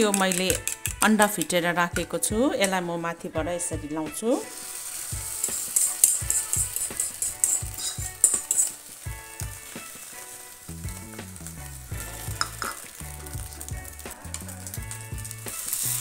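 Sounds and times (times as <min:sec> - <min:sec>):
egg sizzling in a pan: 0:04.1 - 0:16.0
metal spoon scraping a pan: 0:04.4 - 0:10.7, 0:11.9 - 0:13.6, 0:14.3 - 0:16.0
background music with bass: 0:06.2 - 0:16.0.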